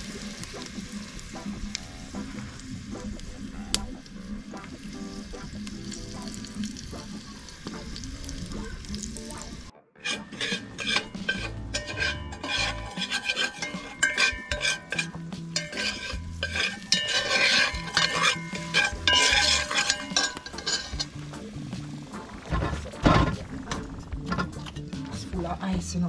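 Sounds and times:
metal utensil scraping and knocking: 10.0s - 21.3s, 22.5s - 25.2s.

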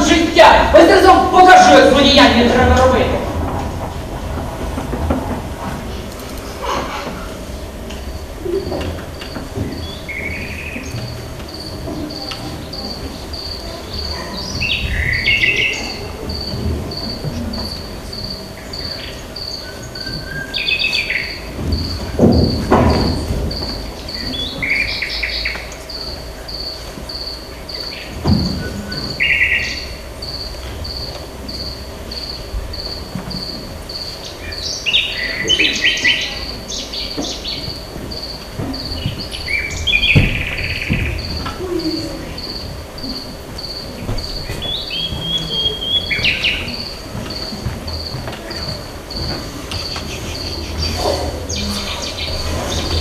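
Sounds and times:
birds calling: 0.0s - 53.0s
cricket chirping: 0.0s - 53.0s
dull thuds: 21.1s - 25.0s, 28.2s - 31.0s, 37.2s - 53.0s.

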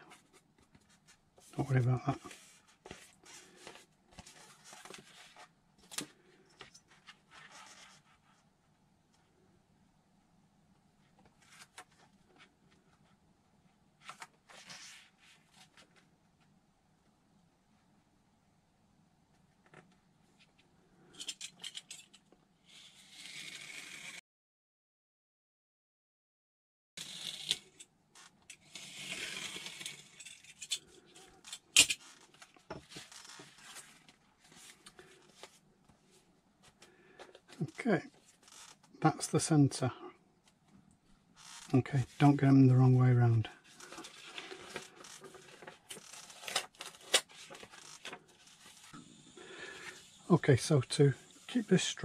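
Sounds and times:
craft knife cutting foam: 22.7s - 24.2s
foam scraping along ruler: 22.7s - 24.2s, 28.6s - 30.3s.

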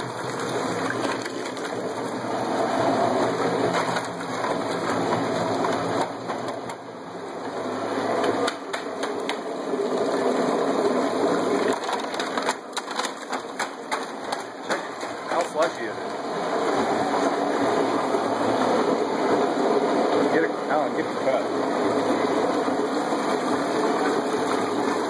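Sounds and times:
ice clattering: 0.0s - 6.8s, 7.9s - 18.2s
garbage disposal grinding ice: 0.0s - 25.0s.

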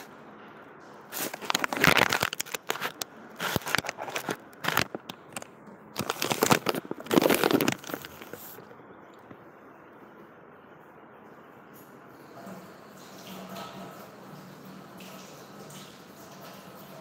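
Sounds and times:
kitchen items crinkling and clattering: 1.0s - 9.3s.

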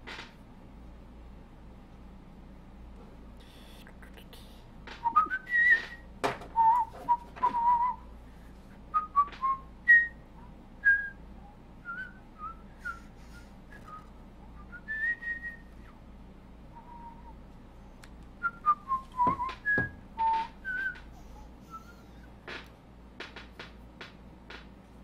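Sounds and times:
person whistling: 5.0s - 6.0s, 6.6s - 8.0s, 11.8s - 15.9s, 16.8s - 17.4s, 18.4s - 22.3s.

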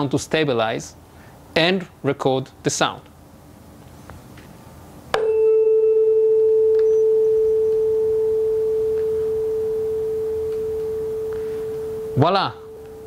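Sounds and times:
mallet striking tuning fork: 5.2s - 13.0s
tuning fork ringing tone: 5.2s - 13.0s.

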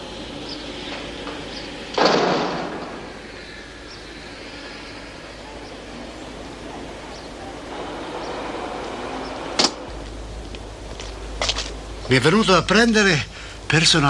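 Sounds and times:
low background hiss: 0.0s - 14.0s
loud slam: 2.0s - 3.1s.

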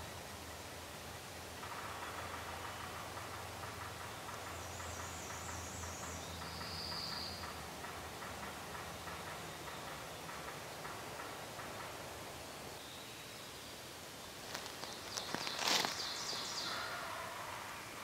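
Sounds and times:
songbird trilling: 4.8s - 7.6s, 14.6s - 16.9s.

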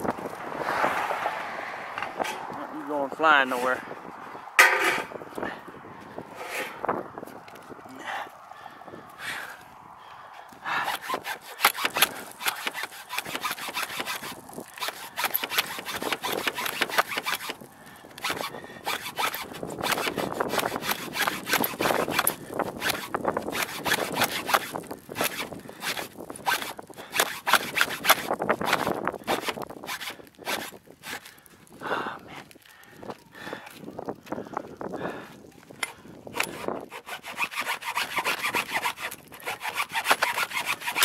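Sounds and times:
hand hacksaw sawing: 4.6s - 5.2s, 6.4s - 6.8s, 10.7s - 31.4s, 35.8s - 41.0s.

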